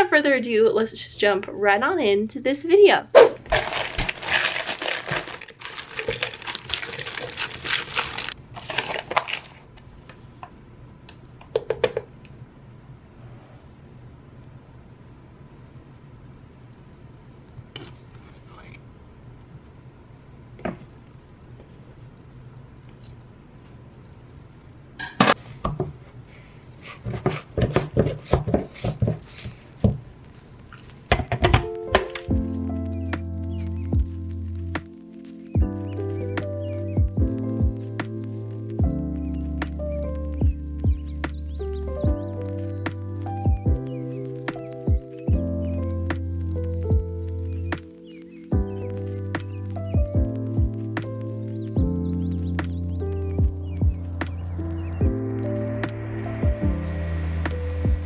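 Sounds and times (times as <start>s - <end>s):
plastic bag crinkling: 3.2s - 9.9s
frozen berries clattering into blender: 3.4s - 9.6s.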